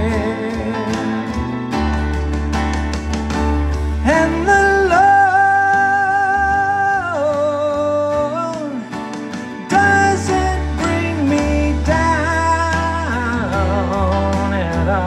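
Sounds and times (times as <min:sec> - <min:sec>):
man singing: 0:00.0 - 0:01.4, 0:04.0 - 0:09.0, 0:09.6 - 0:15.0
strummed acoustic guitar: 0:00.0 - 0:15.0.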